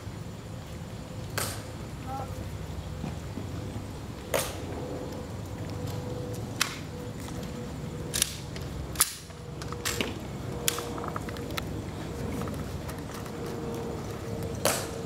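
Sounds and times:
rifle clicks and slaps: 8.1s - 10.9s.

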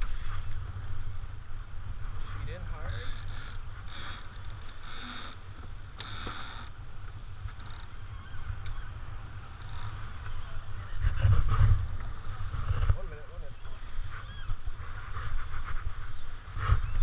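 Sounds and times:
water rushing along hull: 0.0s - 17.0s
wind buffeting microphone: 0.0s - 17.0s
short high squeaks: 14.2s - 14.6s.

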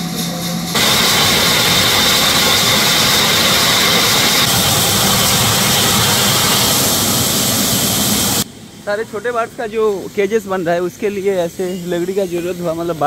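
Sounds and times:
high saw whine: 0.0s - 8.5s.

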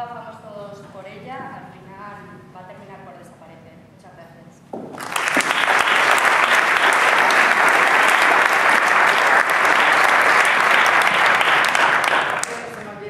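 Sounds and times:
audience applauding: 4.9s - 12.8s.

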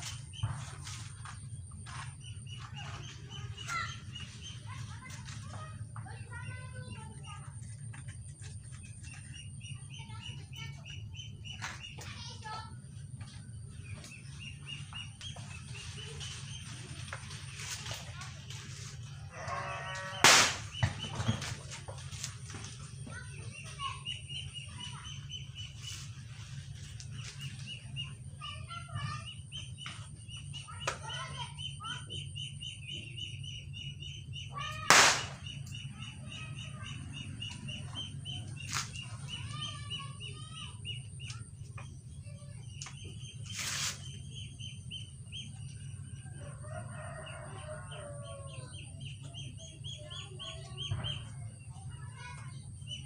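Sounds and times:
birds chirping: 0.0s - 18.2s, 18.8s - 53.0s
chickens: 44.6s - 52.8s.

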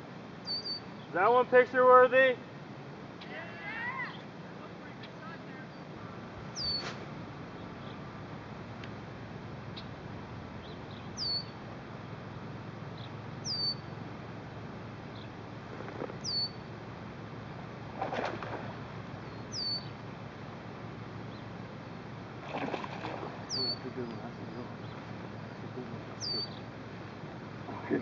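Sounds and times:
low background rush: 0.0s - 28.0s
rustle: 2.4s - 28.0s
bird whistling downward: 6.6s - 6.9s, 11.2s - 11.5s, 13.4s - 13.8s, 16.2s - 16.6s, 19.5s - 19.9s.

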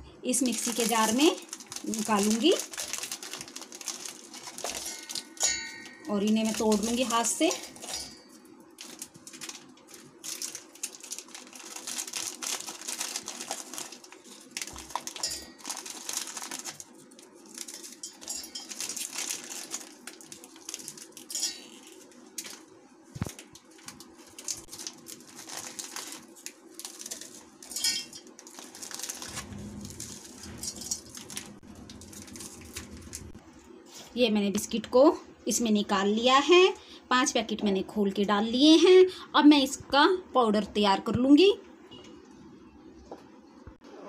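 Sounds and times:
plastic wrappers crinkling: 0.3s - 33.4s
pieces clattering against steel: 27.7s - 28.2s.

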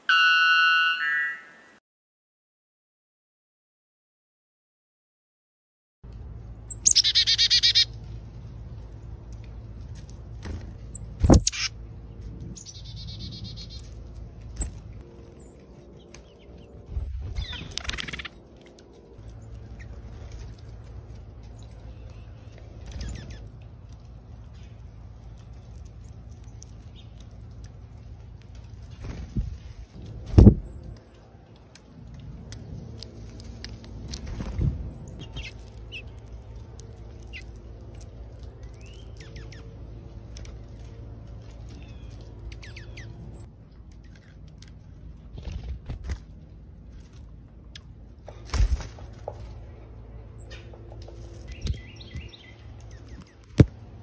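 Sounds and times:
high bird chirping: 0.0s - 1.8s, 6.7s - 7.9s
low steady hum: 6.0s - 54.0s
steady low rumble: 6.0s - 54.0s
songbirds chirping: 6.1s - 45.7s, 46.3s - 54.0s
bird wing flutters: 16.8s - 18.4s, 28.7s - 30.8s, 33.3s - 36.1s, 45.2s - 47.2s, 48.3s - 49.6s.

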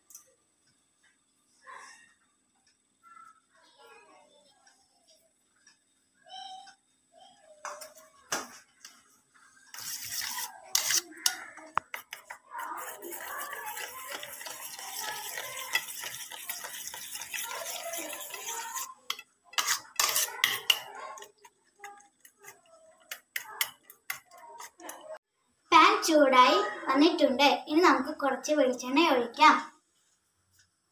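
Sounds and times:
spoon stirring in metal bowl: 9.7s - 25.2s.

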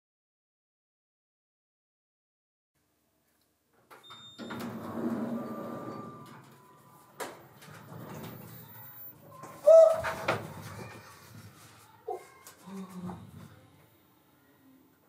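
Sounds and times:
elevator doors sliding: 4.0s - 10.8s.

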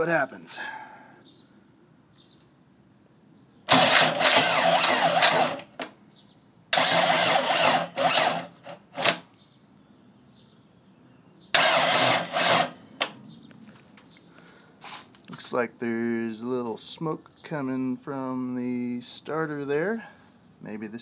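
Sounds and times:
starter cranking diesel engine: 3.7s - 5.7s, 6.8s - 9.2s, 11.6s - 12.8s.

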